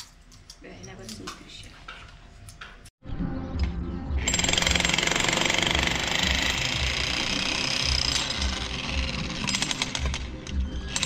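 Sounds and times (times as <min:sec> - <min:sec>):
jackhammer rattling: 0:04.2 - 0:10.3.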